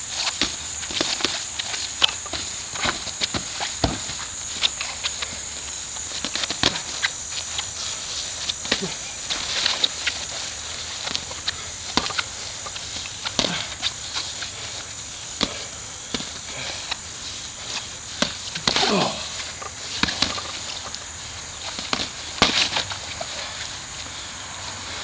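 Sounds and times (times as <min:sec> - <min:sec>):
sneakers shuffling on grass: 0:00.0 - 0:25.0
boxing glove thuds and slaps: 0:02.3 - 0:04.8, 0:06.2 - 0:07.0, 0:08.6 - 0:09.0, 0:11.9 - 0:12.2, 0:13.3 - 0:13.8, 0:18.2 - 0:19.2, 0:20.0 - 0:20.4, 0:21.8 - 0:22.9.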